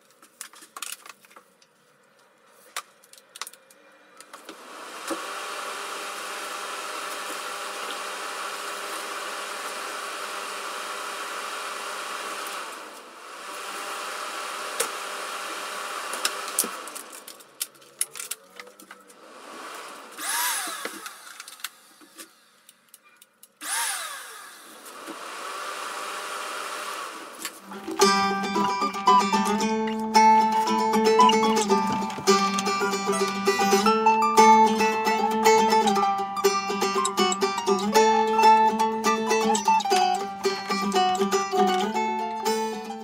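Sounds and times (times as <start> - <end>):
rising-and-falling tones: 27.7 - 42.2.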